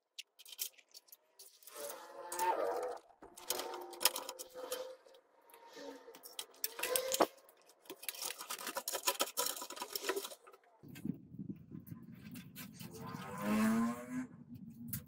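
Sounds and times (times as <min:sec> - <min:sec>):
cables rustling: 0:00.0 - 0:12.9
cable connectors clicking: 0:00.1 - 0:10.8.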